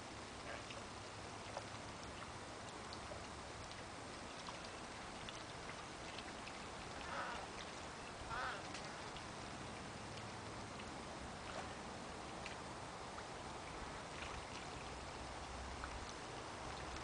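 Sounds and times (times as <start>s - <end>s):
faint hiss: 0.0s - 17.0s
short bird calls: 7.0s - 7.5s, 8.3s - 8.7s.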